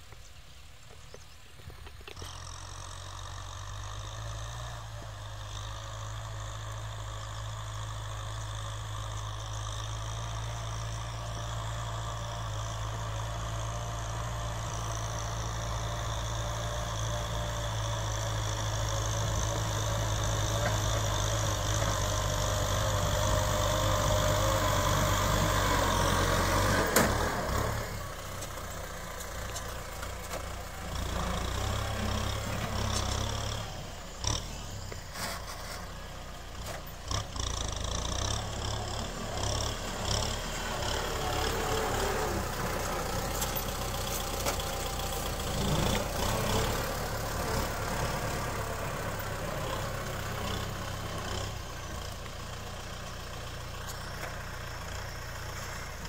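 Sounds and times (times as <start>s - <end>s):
tractor diesel engine running: 0.0s - 56.0s.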